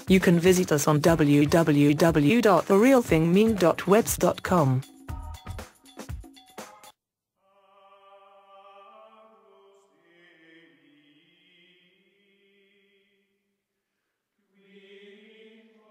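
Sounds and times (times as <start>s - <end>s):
chant-like choral voices: 7.5s - 13.1s, 14.5s - 15.9s.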